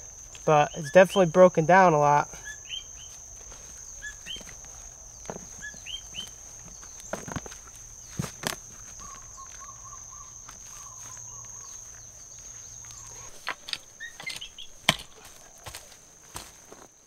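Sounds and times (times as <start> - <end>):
high-pitched insect trill: 0.0 - 16.0
compost rustling: 0.0 - 17.0
bird chirps: 0.3 - 1.4, 2.4 - 3.2, 3.8 - 7.1, 8.9 - 15.6.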